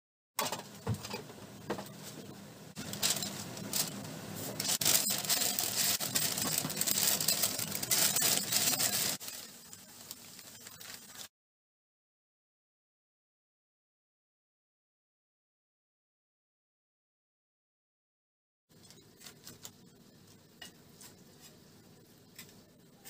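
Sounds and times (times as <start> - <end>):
baking paper crinkling: 2.8 - 11.3, 19.1 - 20.0.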